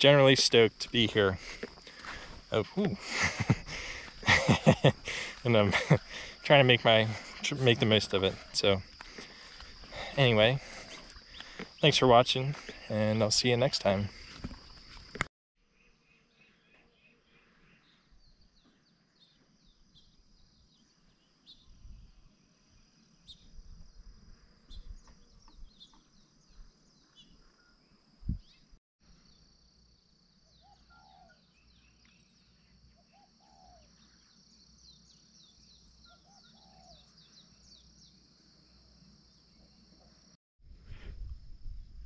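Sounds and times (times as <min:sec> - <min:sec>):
small birds chirping: 0:00.0 - 0:15.2, 0:15.8 - 0:40.3
high insect drone: 0:00.0 - 0:15.3, 0:29.1 - 0:40.4
wind rumbling on microphone: 0:28.2 - 0:28.6, 0:40.6 - 0:42.0
low bird call: 0:30.5 - 0:32.2.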